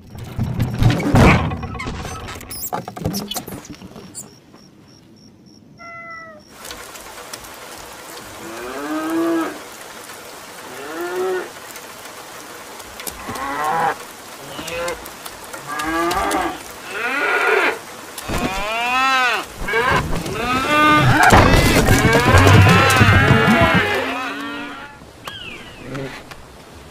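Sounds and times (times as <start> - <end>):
background hiss: 2.5 - 26.9
cows mooing: 13.2 - 25.0.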